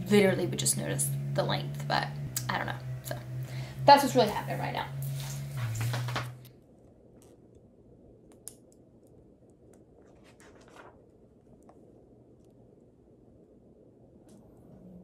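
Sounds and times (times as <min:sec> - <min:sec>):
low hum: 0:00.0 - 0:15.0
noisy rustle: 0:05.1 - 0:06.4
faint clicks and scratches: 0:07.2 - 0:12.8.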